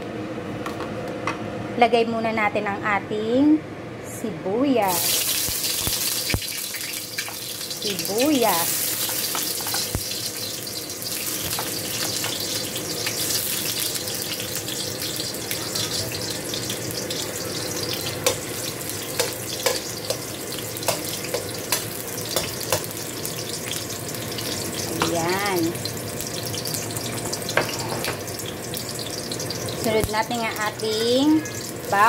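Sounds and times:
onion sizzling in hot oil: 0:04.8 - 0:32.0
metal spoon tapping pan: 0:19.1 - 0:22.9.

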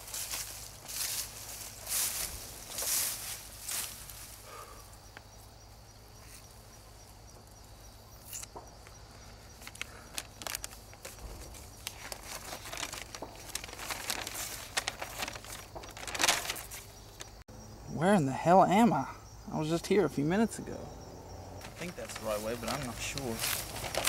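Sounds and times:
paper map crinkling: 0:09.5 - 0:17.4, 0:21.6 - 0:24.0.

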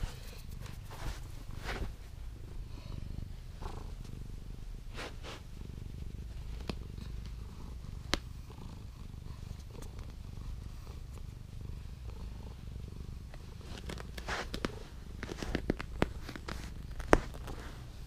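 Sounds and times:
hand rustling against fur: 0:00.0 - 0:02.2, 0:13.5 - 0:18.0
cat purring: 0:00.0 - 0:18.0.

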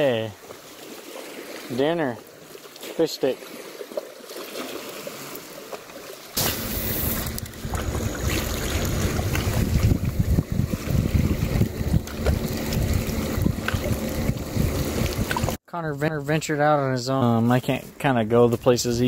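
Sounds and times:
wind buffeting microphone: 0:06.4 - 0:15.6.

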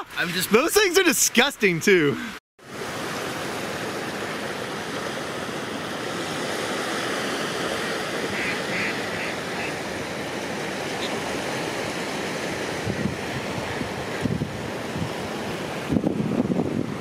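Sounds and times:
wind: 0:00.0 - 0:17.0
waves washing on shore: 0:02.2 - 0:17.0
duck quacks: 0:08.3 - 0:09.8.

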